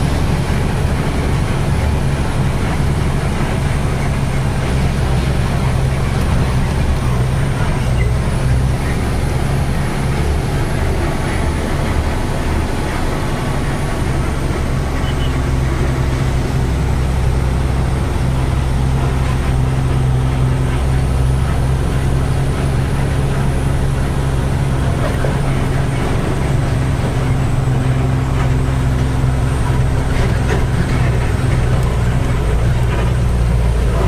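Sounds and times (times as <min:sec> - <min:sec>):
diesel truck engine running: 0:00.0 - 0:34.0
road noise: 0:00.0 - 0:34.0.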